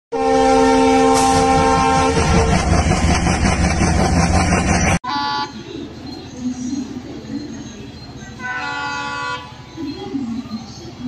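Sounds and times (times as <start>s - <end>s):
train horn: 0.1s - 2.7s, 8.4s - 9.6s
train rumble: 0.2s - 11.0s.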